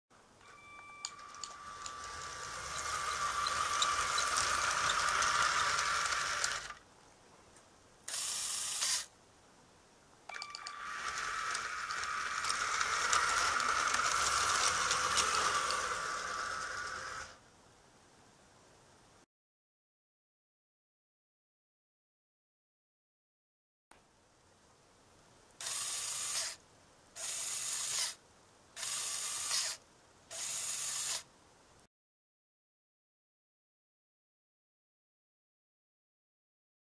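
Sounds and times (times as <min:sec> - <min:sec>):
small electric motor whining: 0:01.0 - 0:06.8, 0:10.4 - 0:17.4, 0:25.6 - 0:26.6, 0:27.2 - 0:28.2, 0:28.8 - 0:31.2
toy train gears clattering on track: 0:01.0 - 0:06.8, 0:08.1 - 0:09.1, 0:10.4 - 0:17.4, 0:25.6 - 0:26.6, 0:27.2 - 0:28.2, 0:28.8 - 0:31.3.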